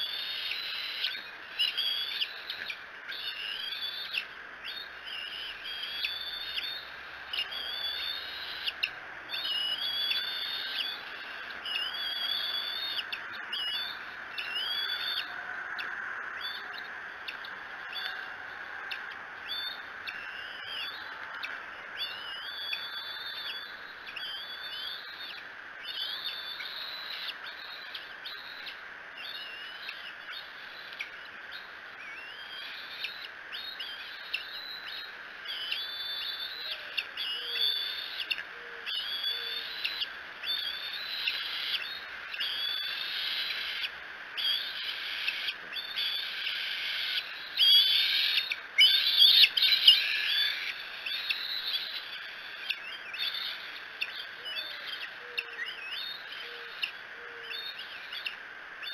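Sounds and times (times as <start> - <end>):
eaglets squealing chirps: 33.8 - 56.9.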